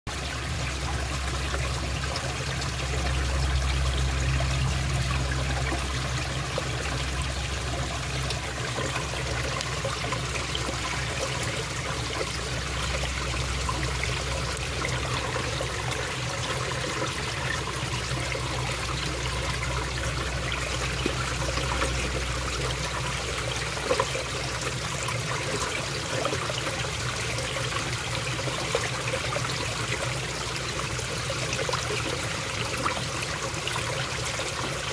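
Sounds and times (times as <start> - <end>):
water trickling and splashing: 0.1 - 34.9
low rumble: 0.4 - 23.4.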